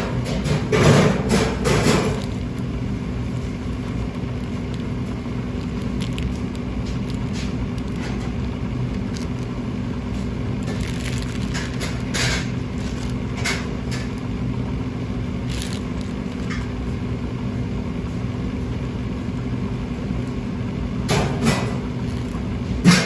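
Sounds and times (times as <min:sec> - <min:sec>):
low mechanical hum: 0:00.0 - 0:23.0
plastic wrap rustling: 0:00.5 - 0:17.0, 0:21.4 - 0:23.0.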